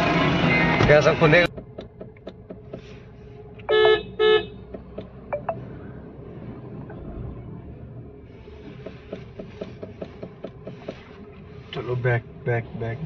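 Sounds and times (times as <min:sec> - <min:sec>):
car horn toots: 0:03.6 - 0:04.8.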